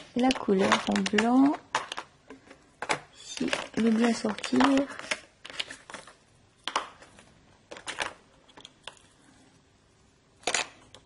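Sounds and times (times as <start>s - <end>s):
beads clicking on a mat: 0.0s - 6.0s.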